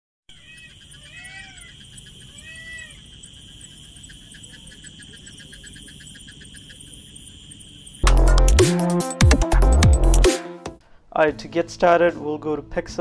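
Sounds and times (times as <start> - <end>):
rising and falling calls: 0.3 - 10.2
high insect drone: 0.3 - 10.3
repeated chirps: 0.3 - 10.3.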